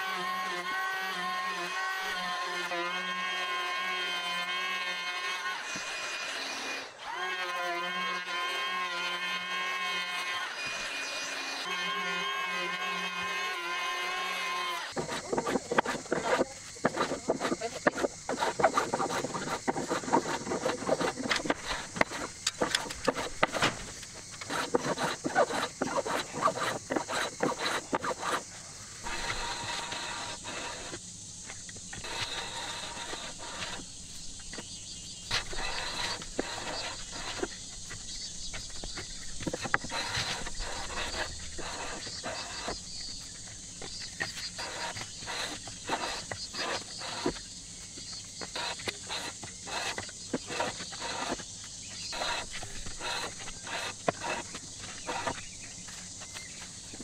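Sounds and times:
hand plane shaving wood: 12.5s - 31.0s, 32.0s - 33.9s, 35.3s - 38.0s, 38.6s - 42.9s, 44.2s - 47.5s, 48.4s - 55.5s.

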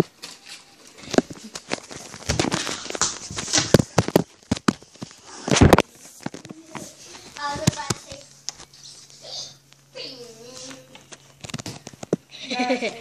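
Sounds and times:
microphone handling noise: 1.1s - 8.2s.

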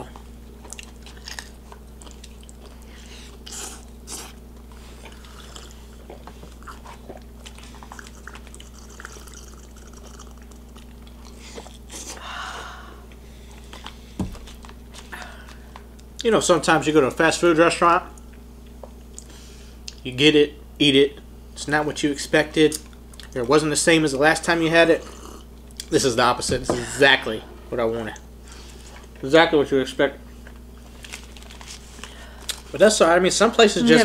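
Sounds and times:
chewing and biting food: 0.1s - 12.2s.

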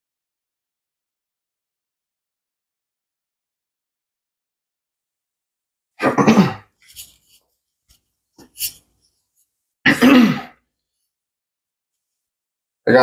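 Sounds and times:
person coughing: 6.0s - 6.7s, 9.9s - 10.6s.

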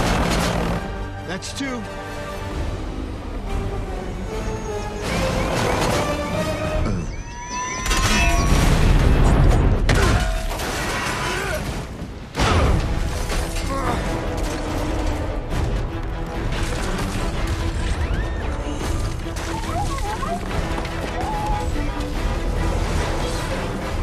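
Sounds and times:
action film music: 0.0s - 24.0s
debris crashing: 7.8s - 24.0s.

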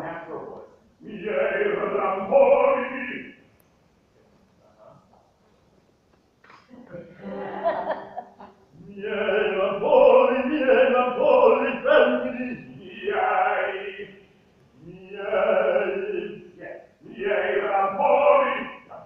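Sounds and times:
man singing operatic phrases: 0.0s - 3.4s, 8.8s - 19.0s.

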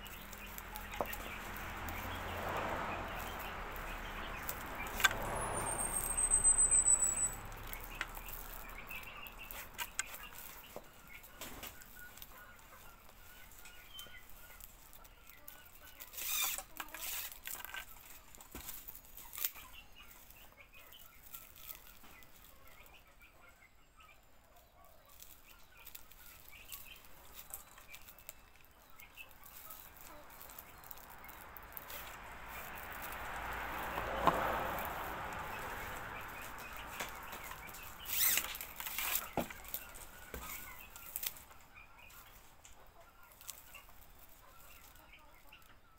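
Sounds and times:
broom bristles rustling and crackling: 0.0s - 23.6s, 24.3s - 45.9s
plastic binding strip rasping: 38.0s - 39.7s.

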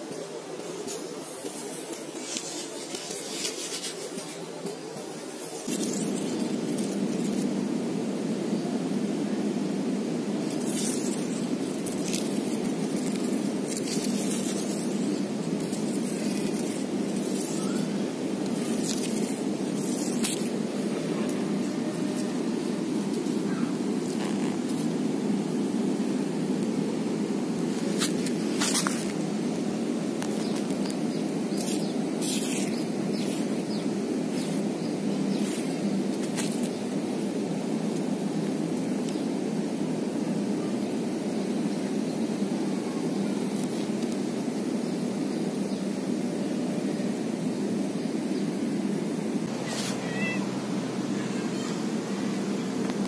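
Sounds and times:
short rustles and crackles: 0.0s - 7.5s, 10.4s - 22.4s, 27.6s - 29.6s, 49.4s - 50.2s
hissing rustles: 0.0s - 53.0s.

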